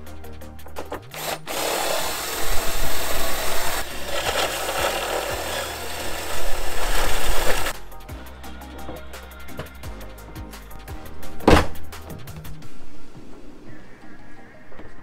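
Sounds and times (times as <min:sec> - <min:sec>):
cordless drill grinding into metal: 0:01.0 - 0:07.7.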